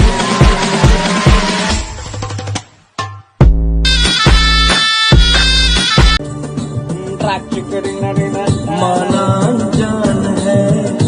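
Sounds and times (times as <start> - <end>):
music track: 0.0 - 10.0
sustained melody: 3.8 - 6.3.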